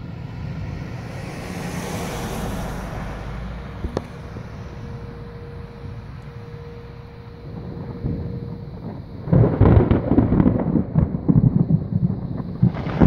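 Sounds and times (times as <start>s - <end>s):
car driving past: 0.0s - 10.0s
steady low rumble: 0.0s - 13.0s.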